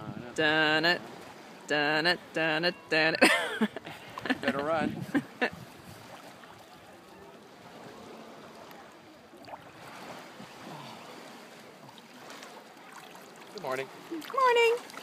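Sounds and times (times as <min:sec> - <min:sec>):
water sloshing around swimmer: 0:05.1 - 0:15.0.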